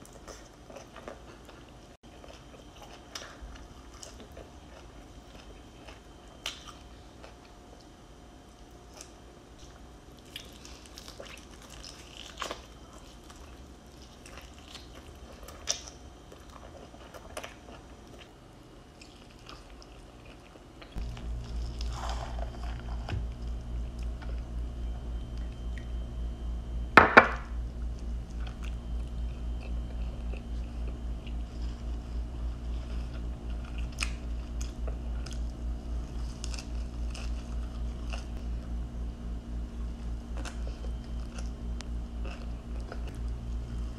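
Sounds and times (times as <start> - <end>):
person chewing and crunching: 0.0 - 8.0, 8.6 - 24.5, 27.8 - 38.7, 39.7 - 43.9
low pulsing hum: 20.9 - 43.9.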